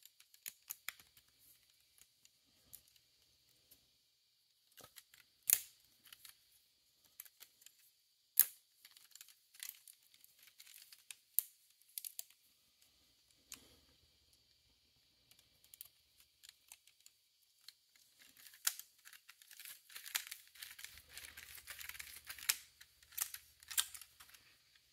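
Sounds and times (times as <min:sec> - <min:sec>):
plastic scraping and rattling: 0:15.7 - 0:24.9.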